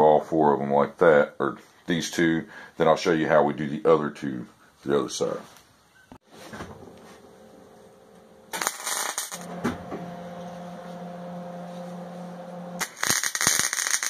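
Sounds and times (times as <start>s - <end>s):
welder humming: 6.3s - 14.0s
welding arc crackle: 8.5s - 9.6s, 12.5s - 14.0s.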